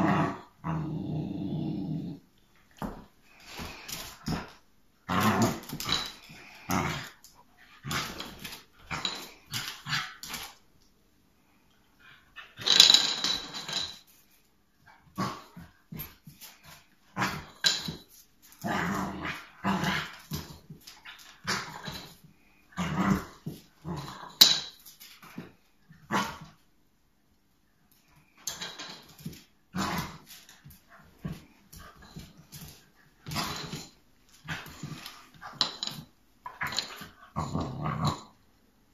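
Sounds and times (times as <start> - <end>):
dog growling barking and whining: 0.0 - 2.3, 3.7 - 10.6, 18.6 - 22.1, 22.7 - 24.4, 36.5 - 38.4.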